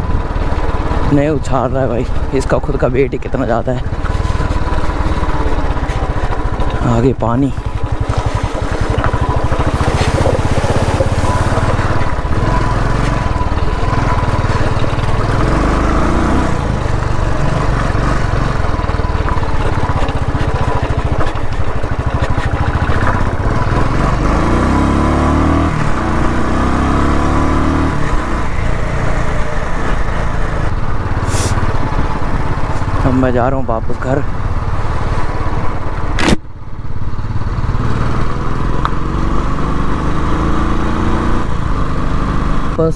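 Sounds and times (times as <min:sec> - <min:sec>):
motorcycle engine thumping: 0:00.0 - 0:15.8, 0:16.4 - 0:24.3.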